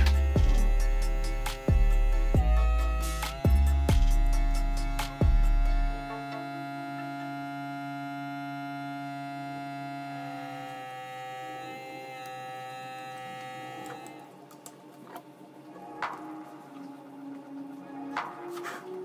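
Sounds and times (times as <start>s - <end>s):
synth chords: 0.0s - 14.3s.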